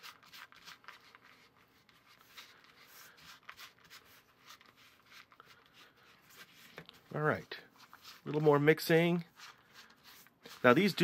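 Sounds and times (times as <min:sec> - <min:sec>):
spatula scraping dough in plastic bowl: 0:09.3 - 0:11.0.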